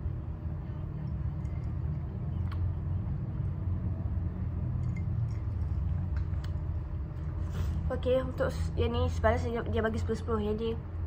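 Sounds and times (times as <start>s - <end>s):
low background rumble: 0.0s - 11.0s.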